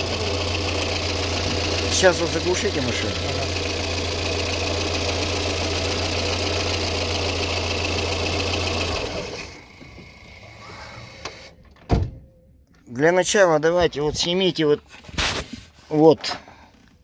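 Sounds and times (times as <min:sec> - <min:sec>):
car engine running: 0:00.0 - 0:11.2.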